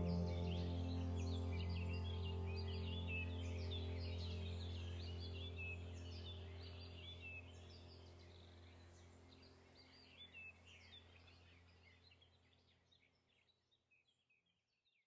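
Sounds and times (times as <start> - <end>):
low droning background music: 0.0 - 11.9.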